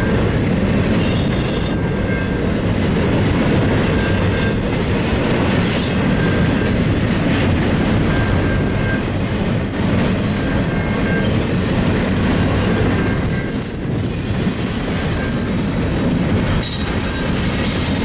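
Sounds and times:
train rumbling on rails: 0.0 - 18.0
high wheel squeals: 0.5 - 2.4, 5.6 - 6.6, 16.6 - 18.0.

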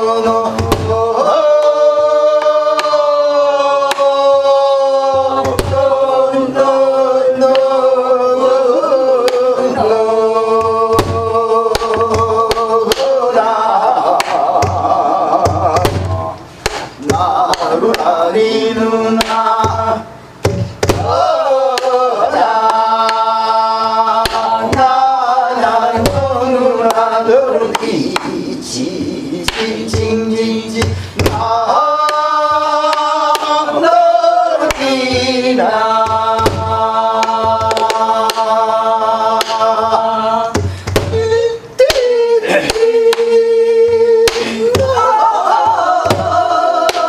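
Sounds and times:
wordless singing with sliding notes: 0.0 - 47.0
stick striking barrel drum: 0.5 - 1.0, 5.4 - 5.9, 10.6 - 13.1, 14.2 - 18.1, 19.2 - 22.0, 24.2 - 25.0, 25.9 - 27.0, 29.5 - 33.5, 36.0 - 38.5, 40.5 - 41.3, 43.9 - 47.0.

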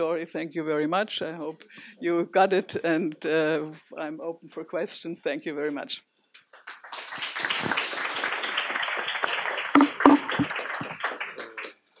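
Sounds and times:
audience applauding: 6.5 - 11.8.

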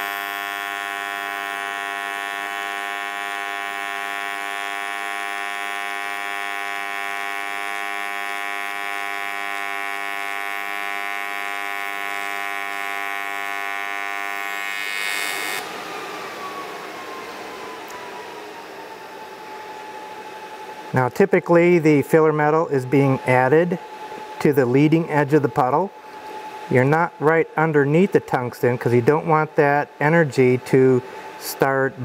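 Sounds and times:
welding arc buzzing: 0.0 - 16.9.

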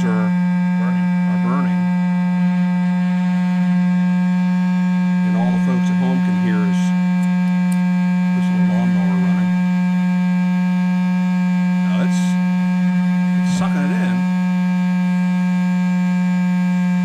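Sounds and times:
electric air pump humming: 0.0 - 17.0.

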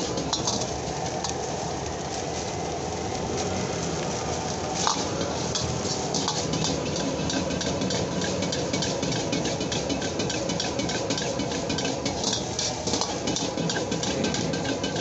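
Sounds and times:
metal ladle scraping wok: 0.0 - 1.4, 4.8 - 15.0
gas burner rushing: 0.0 - 15.0.

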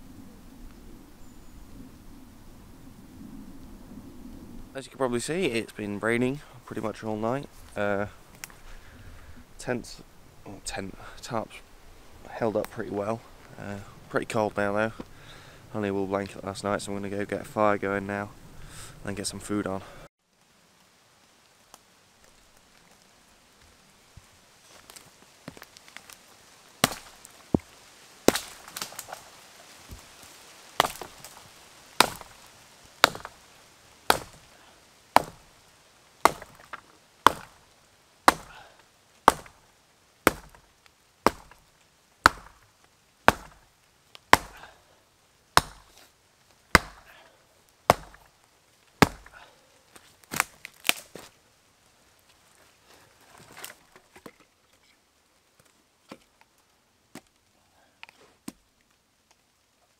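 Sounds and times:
axe chopping wood: 26.8 - 27.2, 28.3 - 29.2, 30.8 - 31.4, 32.0 - 32.4, 33.0 - 33.4, 34.1 - 34.5, 35.2 - 35.5, 36.2 - 37.6, 38.3 - 39.6, 40.3 - 40.6, 41.2 - 41.6, 42.2 - 42.7, 43.3 - 43.7, 44.3 - 44.7, 45.6 - 46.0, 46.7 - 47.2, 47.9 - 48.3, 49.0 - 49.4.

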